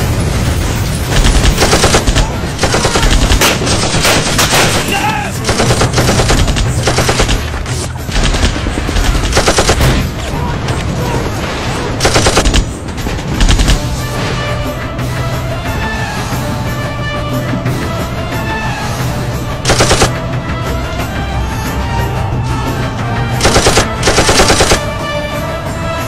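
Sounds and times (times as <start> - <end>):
automatic gunfire: 1.1 - 7.5, 8.1 - 10.1, 12.0 - 12.7, 13.4 - 13.8, 19.7 - 20.1, 23.4 - 24.8.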